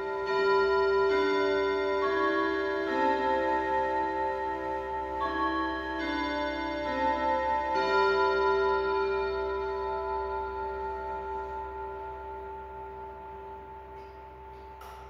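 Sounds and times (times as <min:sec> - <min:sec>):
clock chiming on gong rods: 0:00.0 - 0:15.0.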